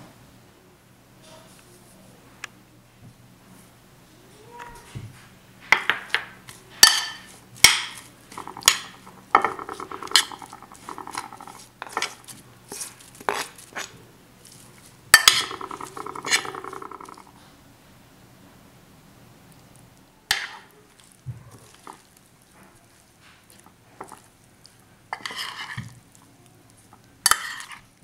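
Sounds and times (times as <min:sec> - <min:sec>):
metal spoon clinking on dish: 0:06.8 - 0:12.2, 0:15.2 - 0:17.2, 0:25.2 - 0:25.7, 0:27.3 - 0:27.8
spoon scraping dish: 0:06.8 - 0:13.9, 0:15.2 - 0:17.3, 0:21.6 - 0:22.1, 0:23.2 - 0:24.3, 0:25.1 - 0:26.0, 0:26.7 - 0:27.9.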